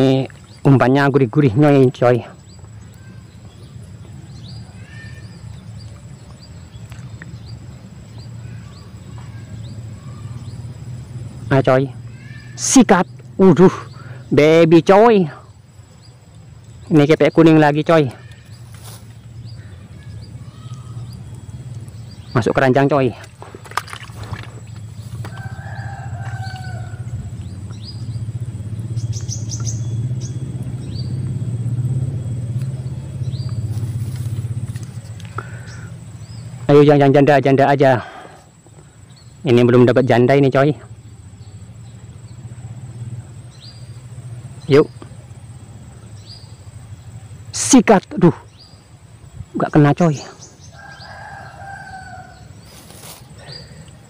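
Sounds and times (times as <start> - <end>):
birds chirping: 0.0 - 54.0
engine running with low rumble: 0.0 - 54.0
high bird chirps: 15.5 - 22.9, 24.6 - 36.7
steady low rumble: 23.3 - 36.7.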